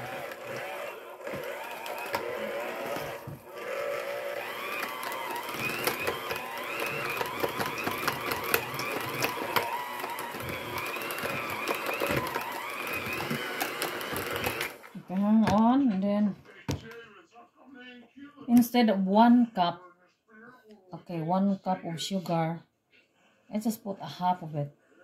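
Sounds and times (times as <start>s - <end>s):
electric hand mixer whine: 0.0s - 15.0s.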